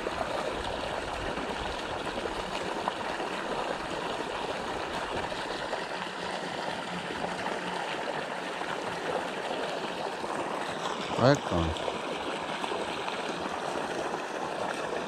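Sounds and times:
water pouring into a pond: 0.0s - 15.0s.

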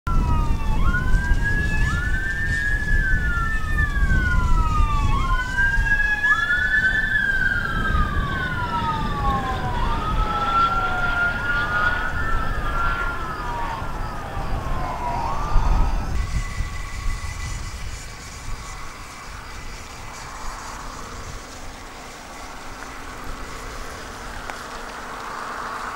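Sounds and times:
emergency sirens wailing: 0.1s - 25.9s.

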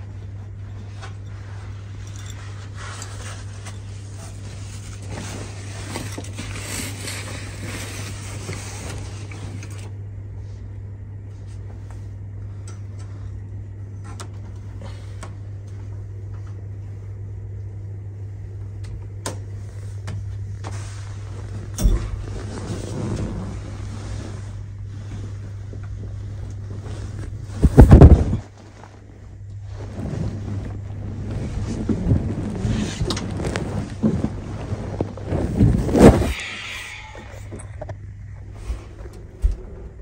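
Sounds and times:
bedding rustling: 0.0s - 9.9s, 19.5s - 36.7s
steady low hum: 0.0s - 40.0s.

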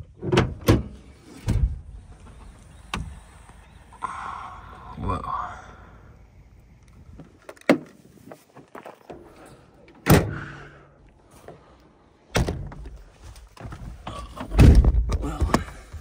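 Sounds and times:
tailgate slamming shut: 14.4s - 15.1s
heavy thunk from truck body: 14.5s - 15.6s.

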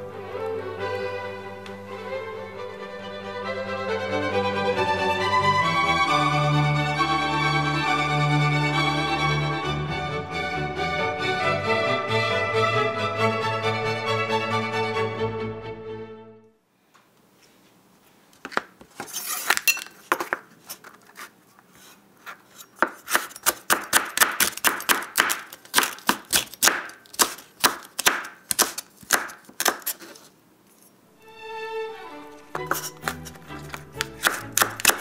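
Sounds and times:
knife chopping on wooden board: 22.8s - 30.2s, 32.6s - 35.0s.

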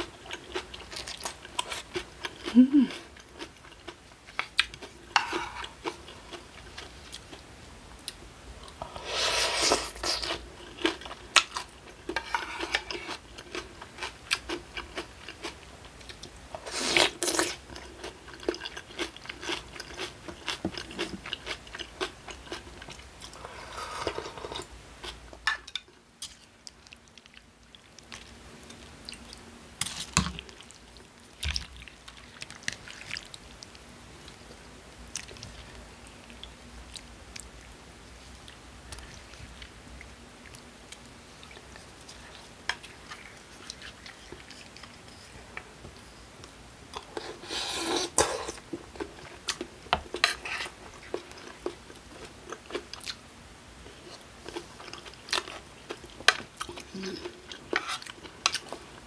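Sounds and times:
wet chewing and crunching: 26.2s - 45.6s.

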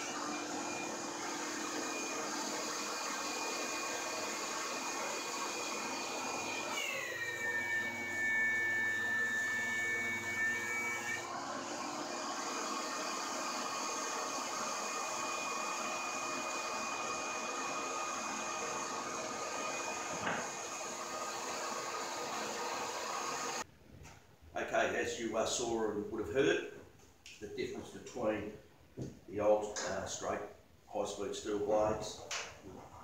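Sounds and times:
thickness planer whine: 0.0s - 23.6s.

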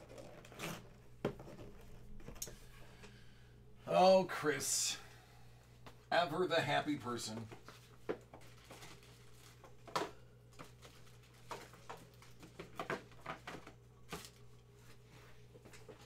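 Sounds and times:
low steady hum: 0.0s - 16.0s
cards and packaging rustling: 6.6s - 16.0s.

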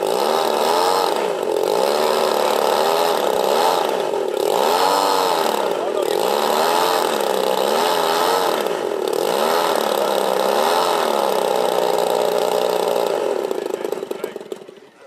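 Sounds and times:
model aircraft propeller engines running: 0.0s - 15.0s.

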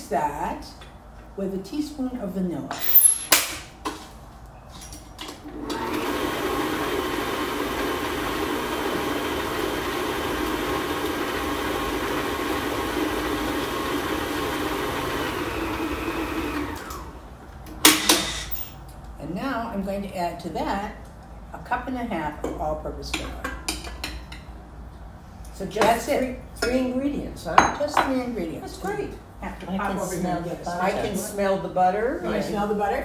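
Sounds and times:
electric stand mixer running: 5.5s - 17.2s.

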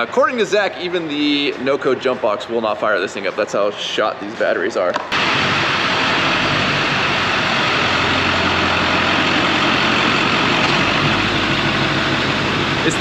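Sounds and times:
truck engine idling: 5.2s - 13.0s.

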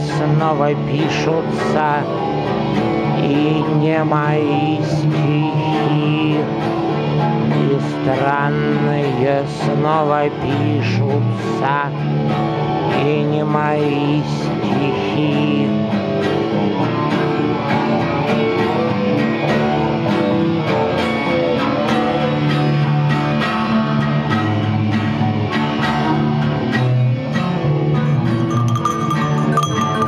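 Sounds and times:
acoustic guitars strumming: 0.0s - 30.0s
bright tinkling: 28.4s - 30.0s.

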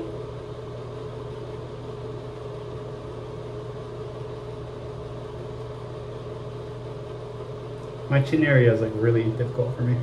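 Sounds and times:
mechanical hum: 0.0s - 10.0s.

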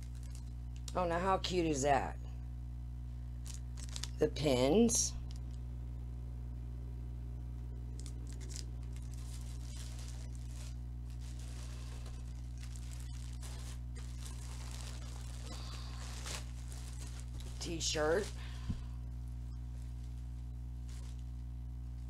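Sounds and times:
plastic bag rustling and tearing: 0.0s - 0.9s, 3.4s - 4.2s, 8.0s - 21.5s
low electrical hum: 0.0s - 22.0s.

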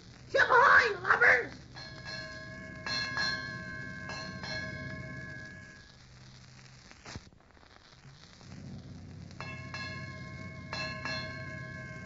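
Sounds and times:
low recording hum: 0.0s - 7.1s, 7.8s - 12.0s
ship's bell ringing: 1.7s - 5.8s, 9.4s - 12.0s.

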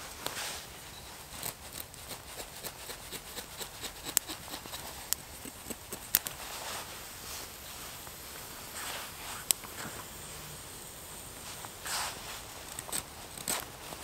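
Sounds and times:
wood fire crackling: 0.0s - 14.0s
knife cutting dry sticks: 1.2s - 6.7s, 11.6s - 14.0s.

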